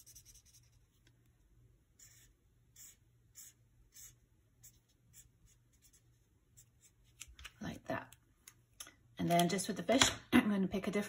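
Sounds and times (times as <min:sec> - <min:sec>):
marker scratching on paper: 0:00.0 - 0:00.9, 0:02.0 - 0:07.3.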